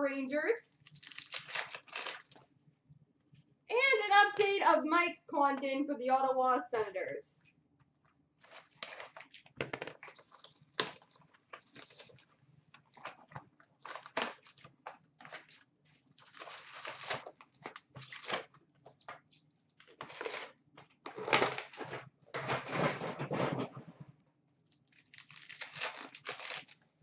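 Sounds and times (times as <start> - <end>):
plastic wrap and cardboard crinkling: 0.8 - 2.4, 8.4 - 23.7, 24.8 - 26.8.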